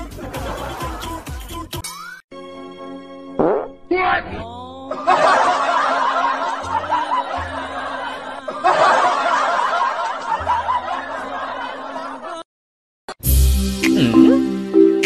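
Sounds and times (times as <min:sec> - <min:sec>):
crowd laughing: 0:00.0 - 0:01.6, 0:04.9 - 0:12.5
background music: 0:00.0 - 0:12.2, 0:13.2 - 0:15.0.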